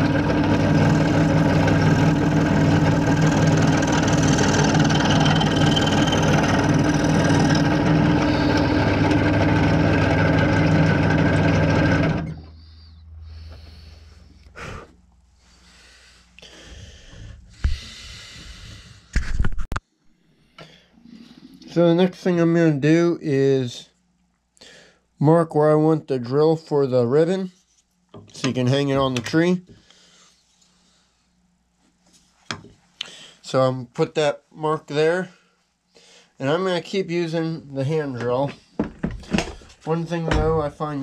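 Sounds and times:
scroll saw cutting thin wood: 0.0s - 12.6s.

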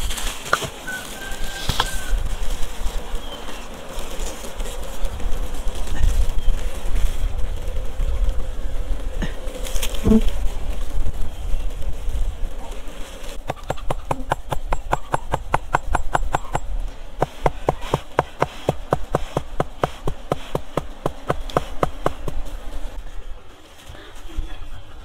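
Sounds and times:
bees buzzing: 0.0s - 23.6s
tapping on hollow log: 13.4s - 22.4s.

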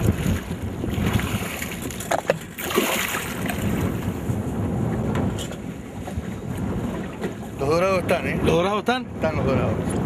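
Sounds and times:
choppy water: 0.0s - 10.0s
wind rumble on microphone: 0.0s - 10.0s
fish splashing at water surface: 1.0s - 3.8s.

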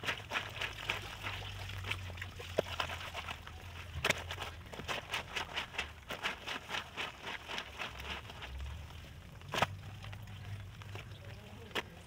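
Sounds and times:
clothing scrubbed on stone: 0.0s - 9.8s.

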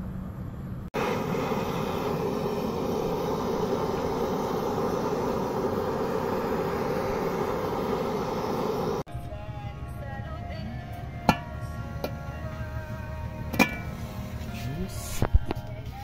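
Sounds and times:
gas blowtorch burning: 0.8s - 9.1s, 11.2s - 15.7s.

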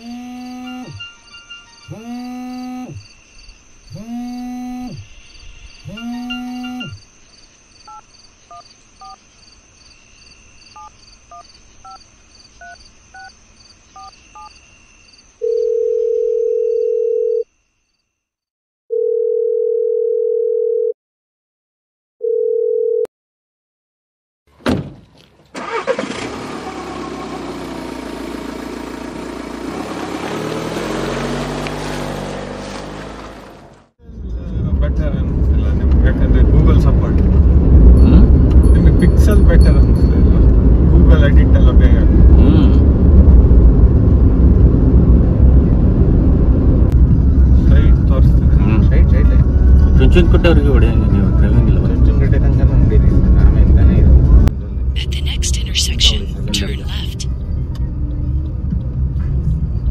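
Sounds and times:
electronic tones sliding down: 0.0s - 3.1s, 3.9s - 5.1s, 5.8s - 7.0s
loud steady beep tone: 0.0s - 3.1s, 3.9s - 7.1s
rushing noise with low hum: 34.1s - 55.4s.

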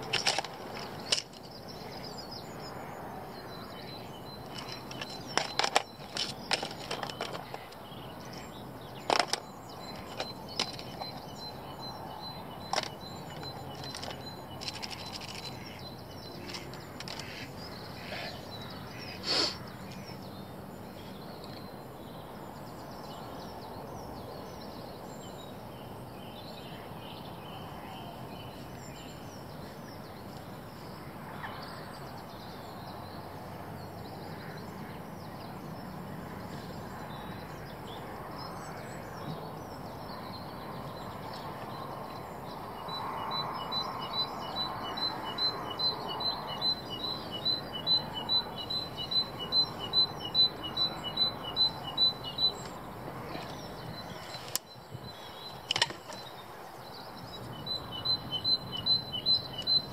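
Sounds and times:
fishing tackle clicking and rustling: 0.0s - 2.1s, 4.4s - 7.8s, 9.0s - 11.5s, 12.6s - 17.7s, 55.6s - 56.3s
outdoor background hiss: 0.0s - 59.9s.

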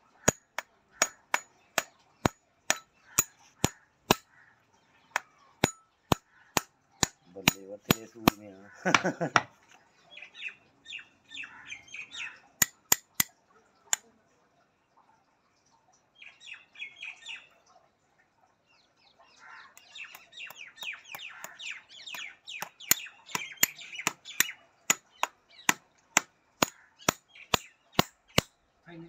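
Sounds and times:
birds chirping: 0.0s - 17.9s, 18.5s - 29.0s
hammer tapping nails: 5.6s - 9.5s, 22.1s - 28.5s.

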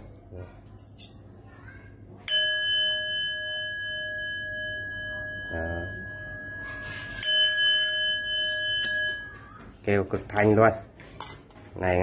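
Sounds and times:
bowl bell ringing: 2.2s - 9.5s.

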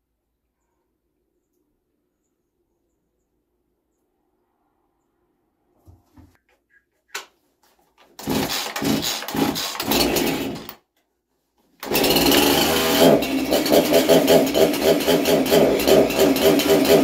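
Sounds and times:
two-stroke chainsaw starting and running: 8.2s - 10.8s, 11.8s - 17.0s.

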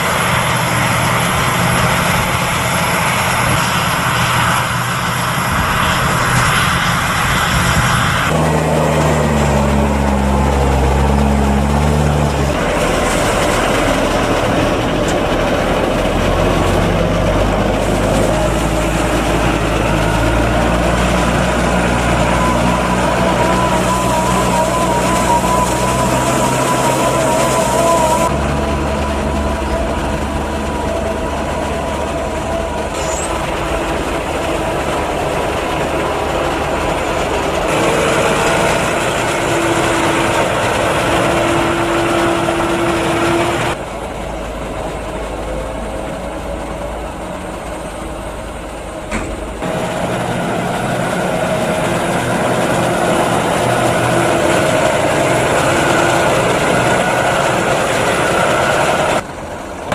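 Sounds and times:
tractor engine running: 0.0s - 59.9s.

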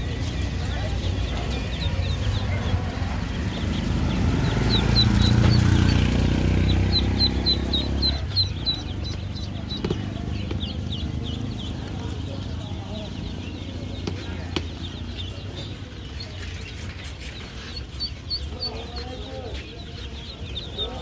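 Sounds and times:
ducklings peeping: 0.0s - 21.0s.

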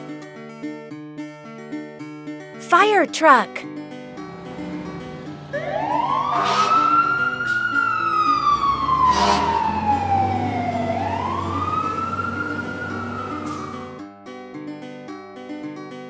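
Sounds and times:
fire engine siren wailing: 5.5s - 14.0s.

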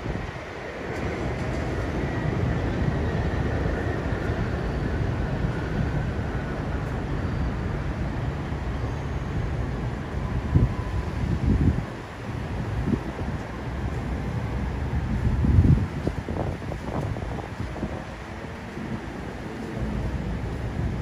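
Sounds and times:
wind buffeting microphone: 0.0s - 7.8s, 10.1s - 21.0s
faint high whine: 0.0s - 15.8s
train wheels rumbling on rails: 0.0s - 21.0s.

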